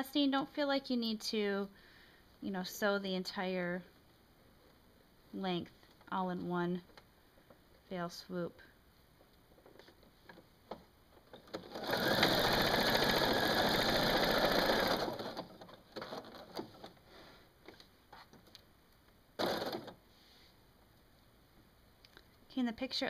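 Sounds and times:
sewing machine stitching: 11.4 - 16.9, 19.4 - 20.0.

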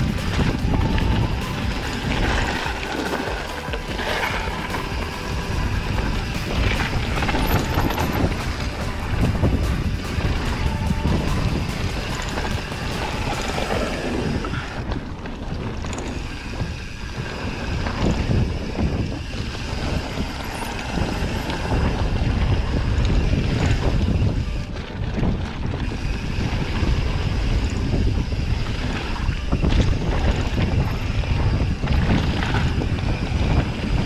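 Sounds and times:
bike rattling knocks: 0.0 - 13.9
bike tyres crunching on gravel: 0.0 - 34.0
wind buffeting microphone: 0.0 - 34.0.

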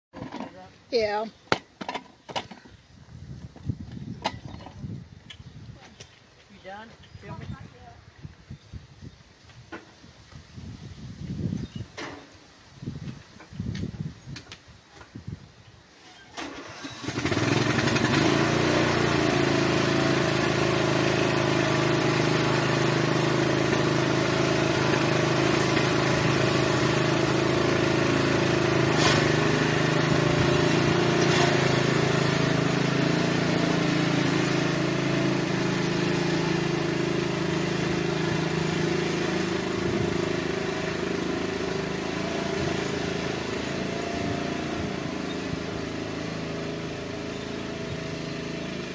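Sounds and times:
riding lawn mower engine: 0.2 - 2.8, 15.9 - 48.9.

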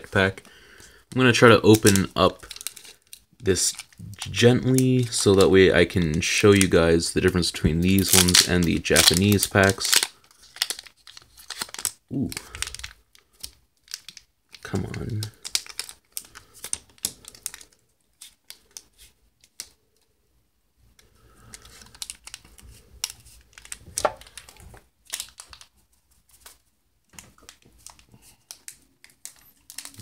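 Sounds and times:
foil wrapper crinkling: 0.1 - 6.8, 7.8 - 19.6, 21.3 - 26.6, 27.2 - 30.0.

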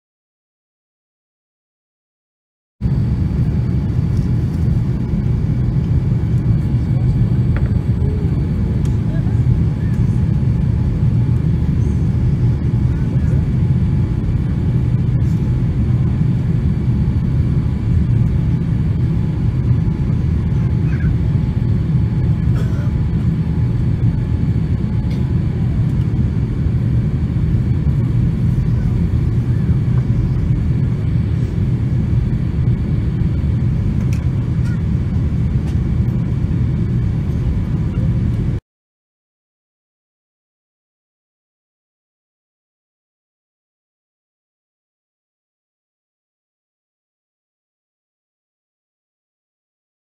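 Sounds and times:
jet engine rumble in cabin: 2.8 - 38.6.

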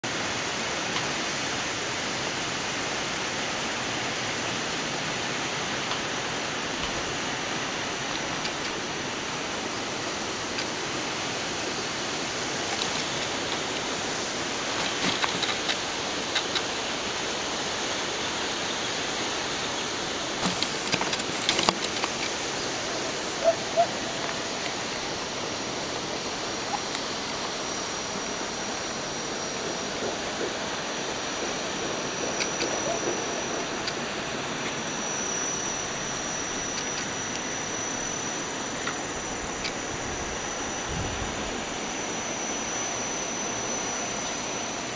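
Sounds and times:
sharp clicks: 8.0 - 9.0, 14.6 - 16.8, 20.4 - 22.7, 31.4 - 34.0.

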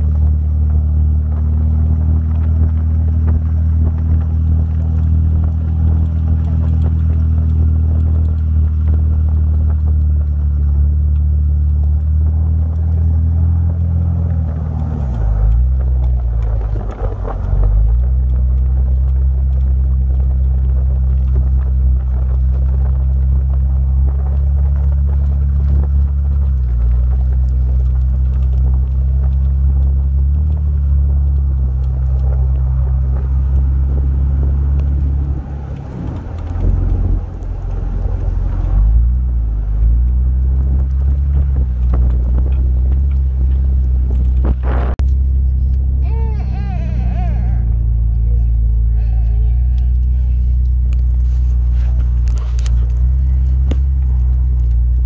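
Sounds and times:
car engine and exhaust droning: 0.0 - 55.0.

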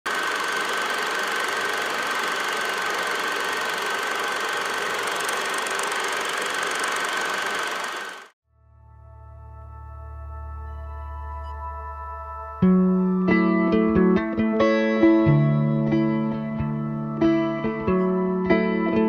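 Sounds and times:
film projector whirring: 0.1 - 8.4
soft music: 8.5 - 19.0.

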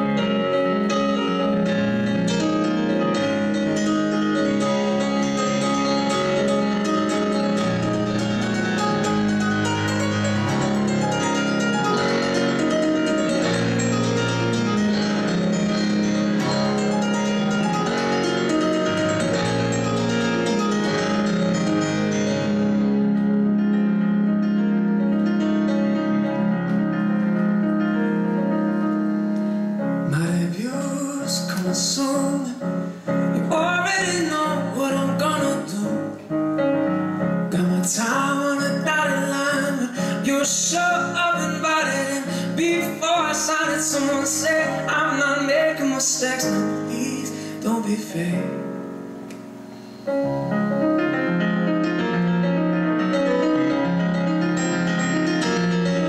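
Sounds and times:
stage piano chords: 0.0 - 56.0
man singing: 30.0 - 36.2, 37.5 - 48.6.

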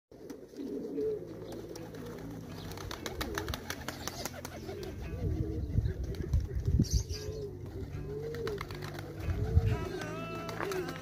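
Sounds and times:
pigeons cooing: 0.2 - 11.0.

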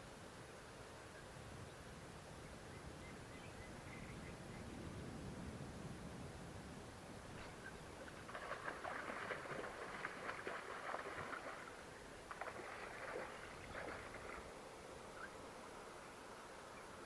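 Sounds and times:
fish splashing in water: 8.0 - 14.6.

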